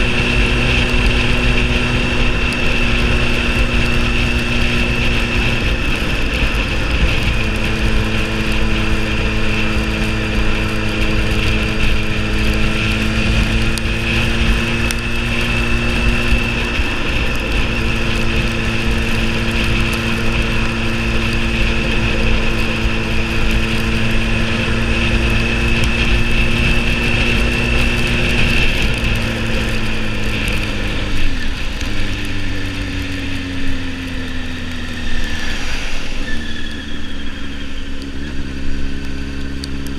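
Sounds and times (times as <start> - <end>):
motorcycle engine running: 0.0 - 39.9
steady high whine: 0.0 - 39.9
wind rushing: 33.8 - 38.6.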